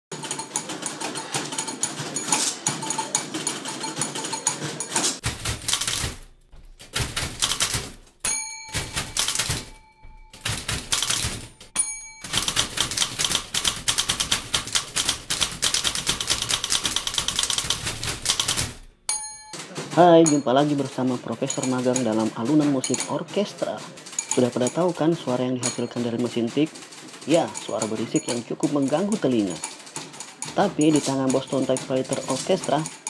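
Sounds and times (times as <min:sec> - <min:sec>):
typewriter bell dings: 0:00.1 - 0:05.2, 0:08.2 - 0:13.5, 0:18.3 - 0:33.0
typewriter keys clacking: 0:00.1 - 0:18.8, 0:19.4 - 0:33.0.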